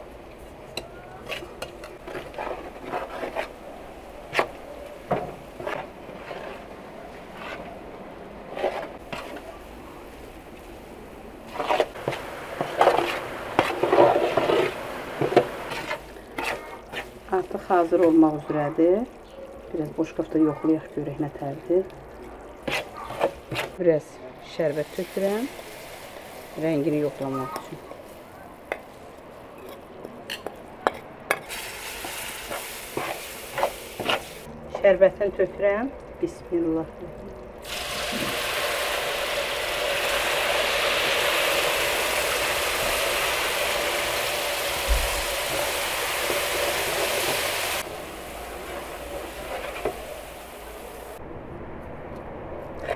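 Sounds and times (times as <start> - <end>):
metal spoon scraping a pan: 1.2 - 3.6, 5.6 - 6.7, 11.5 - 17.2, 22.6 - 23.8
butter sizzling: 8.7 - 23.8, 24.7 - 29.6, 31.3 - 34.5, 37.5 - 51.2.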